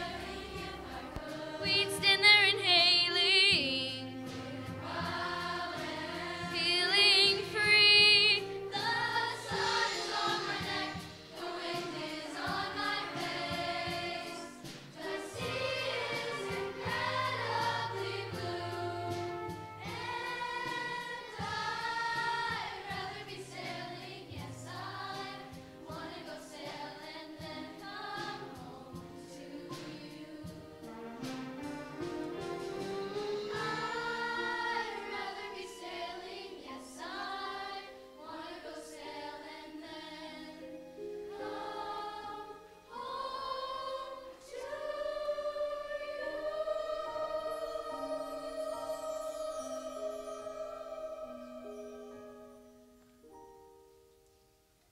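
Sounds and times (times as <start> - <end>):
live band accompaniment: 0.0 - 36.4
choir singing: 0.0 - 52.7.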